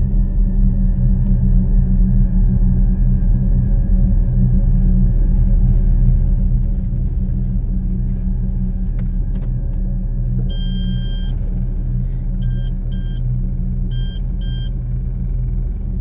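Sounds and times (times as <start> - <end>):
car interior rumble: 0.0 - 16.0
high electronic beeps: 10.5 - 11.3, 12.4 - 13.2, 13.9 - 14.7.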